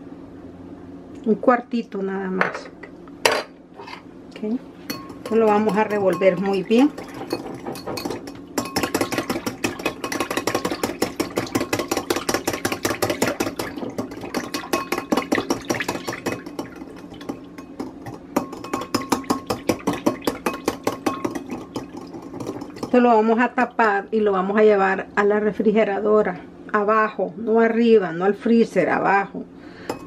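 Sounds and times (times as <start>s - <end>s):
whisk clicking against glass bowl: 4.9s - 23.1s.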